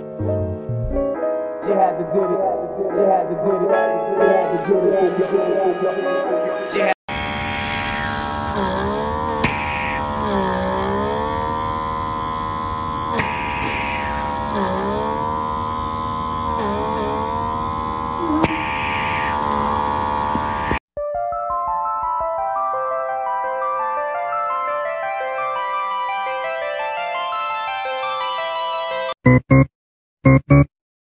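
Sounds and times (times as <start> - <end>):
small suction motor buzzing: 7.1 - 20.8.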